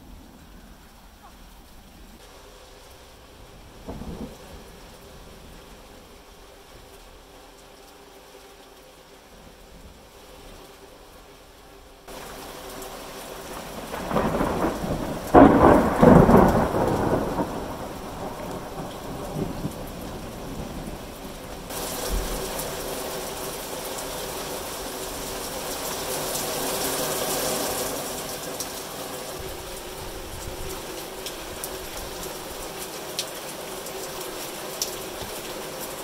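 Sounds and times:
thunder rumble: 0.0s - 7.3s, 12.1s - 23.3s
heavy rain falling: 0.0s - 36.0s.

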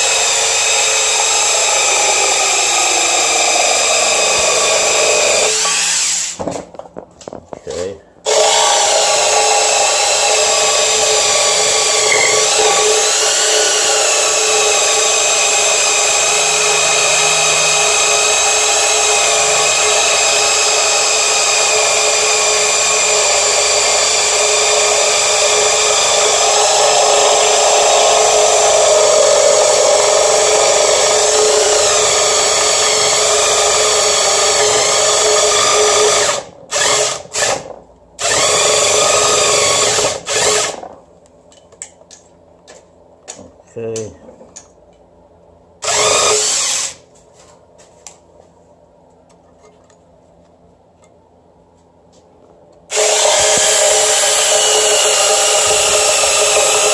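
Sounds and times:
power saw cutting metal: 8.3s - 40.8s, 52.9s - 56.9s.

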